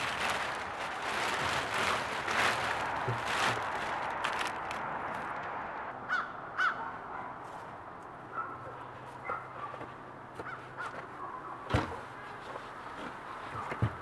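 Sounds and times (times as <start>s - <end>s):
crow cawing: 6.1s - 6.9s.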